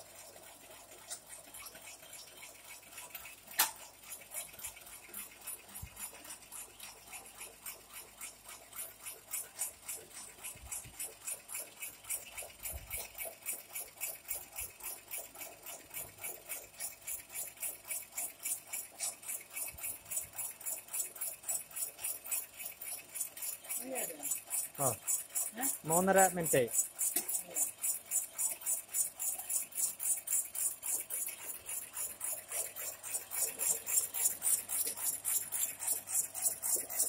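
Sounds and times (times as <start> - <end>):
electric slicer clicking: 3.0 - 3.9.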